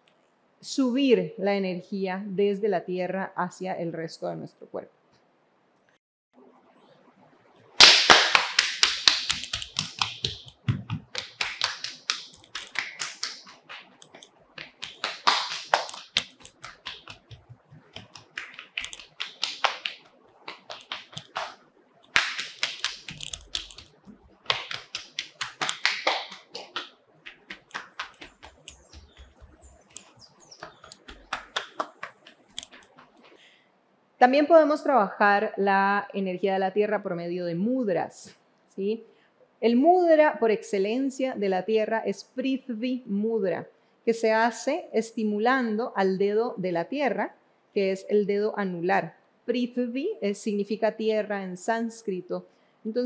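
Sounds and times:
hands slapping legs: 0:07.8 - 0:33.4.

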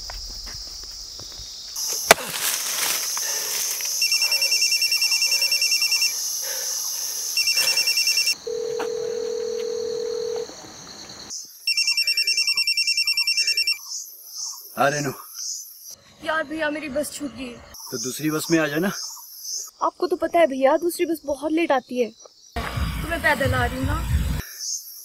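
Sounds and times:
insect chirring: 0:00.0 - 0:16.5, 0:17.8 - 0:22.6
steady beep: 0:04.0 - 0:06.1, 0:07.4 - 0:08.4, 0:11.7 - 0:13.8
phone trilling ringtone: 0:04.0 - 0:06.2, 0:07.4 - 0:10.4, 0:11.7 - 0:13.8.

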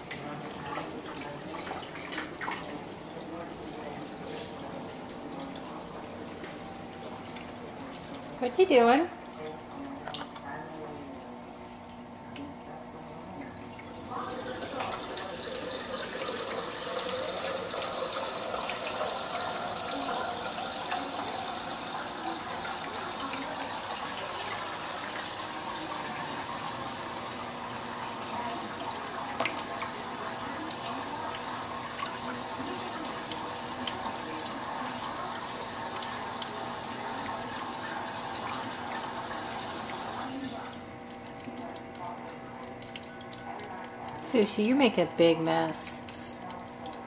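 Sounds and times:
fountain water splashing into bowl: 0:13.3 - 0:45.0.

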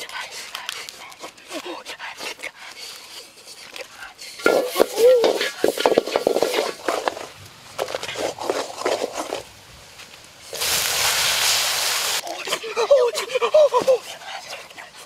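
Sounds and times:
spatula scraping a wok: 0:04.3 - 0:09.5
chicken sizzling: 0:08.8 - 0:12.8.

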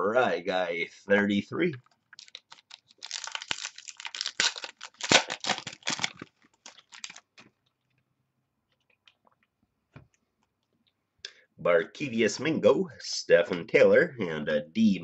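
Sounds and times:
wrapper crinkling and tearing: 0:02.1 - 0:07.5.

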